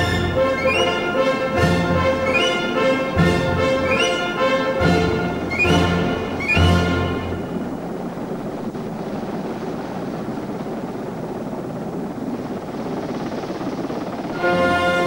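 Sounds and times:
helicopter rotor and engine: 0:00.0 - 0:15.0
wind buffeting microphone: 0:00.0 - 0:15.0.

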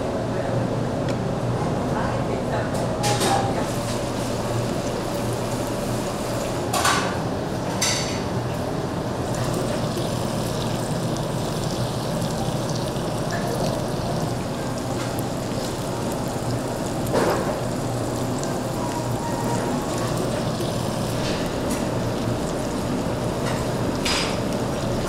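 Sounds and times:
food sizzling: 0:09.1 - 0:25.0.

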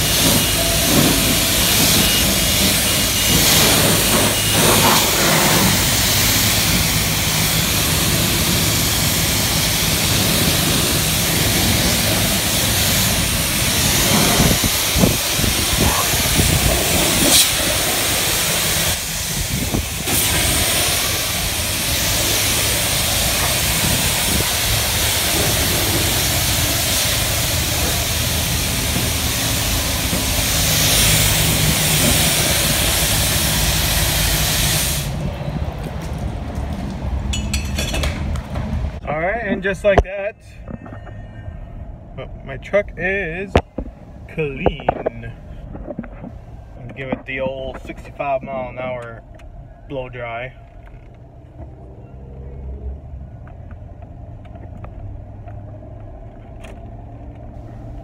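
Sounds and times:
pressure washer spray hissing: 0:00.0 - 0:35.2.

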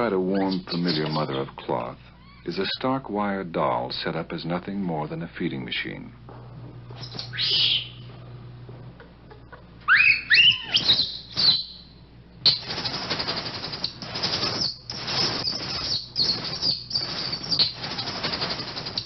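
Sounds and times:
infant monkey shrill calls: 0:07.0 - 0:08.0, 0:09.9 - 0:11.9, 0:12.5 - 0:19.0
monkey harsh screeches: 0:07.0 - 0:08.0, 0:09.9 - 0:11.8, 0:12.5 - 0:19.0.

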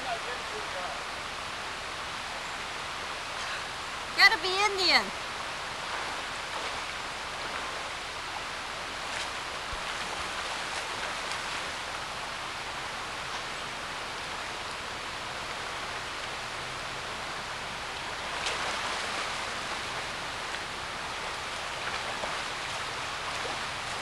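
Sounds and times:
river running over rocks: 0:00.0 - 0:24.0.

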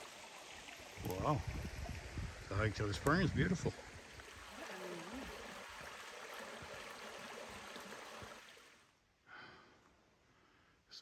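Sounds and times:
creek running over stones: 0:00.0 - 0:09.0.

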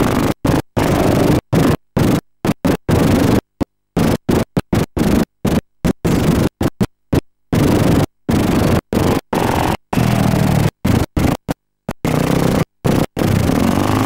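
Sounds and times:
harsh noise in short bursts: 0:07.5 - 0:14.0.

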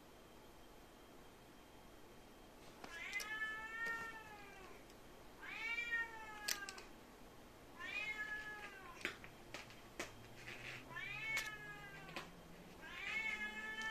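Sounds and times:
cat meowing: 0:02.9 - 0:04.8, 0:05.4 - 0:06.9, 0:07.8 - 0:09.0, 0:10.8 - 0:13.9.

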